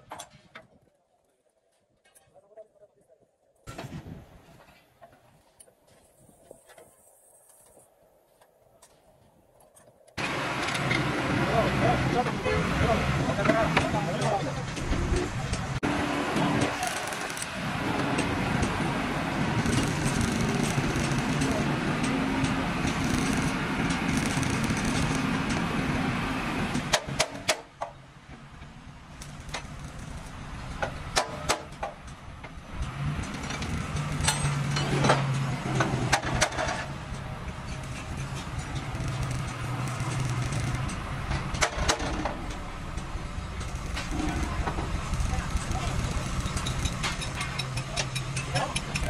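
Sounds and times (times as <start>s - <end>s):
diesel crane engine running: 10.2s - 49.0s
sharp metal clanks: 33.2s - 49.0s.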